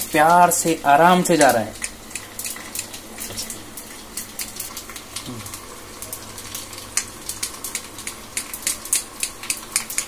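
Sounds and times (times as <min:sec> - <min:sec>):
spices sizzling in oil: 0:00.0 - 0:10.0
light crackling ticks: 0:01.4 - 0:05.6, 0:07.0 - 0:10.0.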